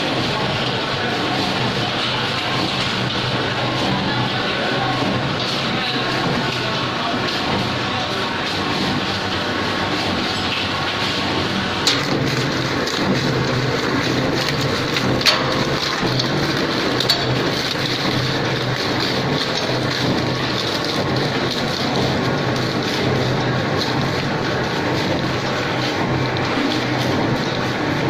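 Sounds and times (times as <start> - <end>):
shredder grinding: 11.5 - 28.0.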